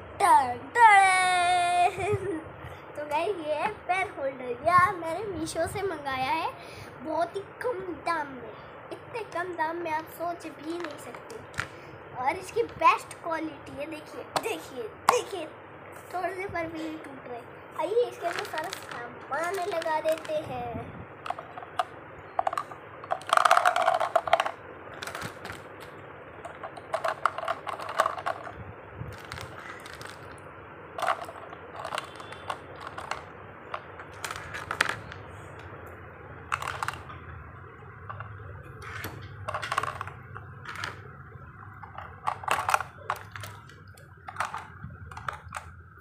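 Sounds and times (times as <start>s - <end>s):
pens clattering into holder: 26.5s - 28.5s.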